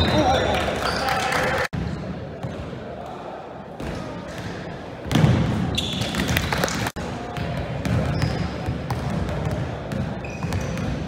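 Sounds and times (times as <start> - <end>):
sneakers squeaking on court: 0.0 - 1.2, 5.1 - 6.6, 7.4 - 11.0
murmur of voices: 0.0 - 5.7.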